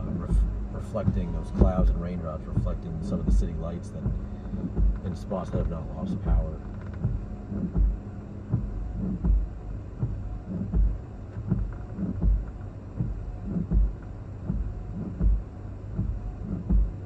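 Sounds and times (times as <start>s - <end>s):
wind gusts thudding on microphone: 0.0s - 6.4s.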